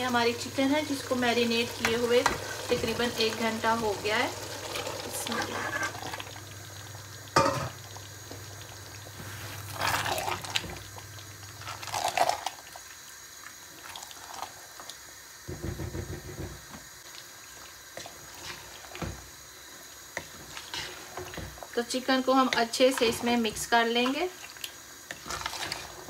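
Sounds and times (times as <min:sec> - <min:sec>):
spatula stirring and scraping pot: 0:04.8 - 0:06.2, 0:09.1 - 0:10.7, 0:18.0 - 0:26.0.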